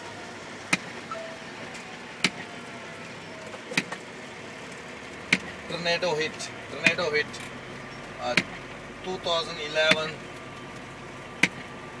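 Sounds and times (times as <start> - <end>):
road noise inside cab: 0.0 - 12.0
windshield wipers knocking: 0.7 - 1.2, 2.2 - 2.6, 3.5 - 4.0, 5.2 - 5.6, 6.8 - 7.5, 8.2 - 8.7, 9.7 - 10.4, 11.4 - 11.8.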